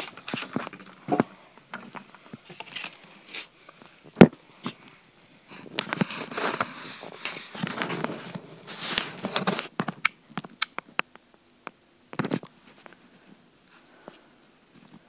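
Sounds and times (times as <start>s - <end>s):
rustling of small objects: 0.0s - 10.1s.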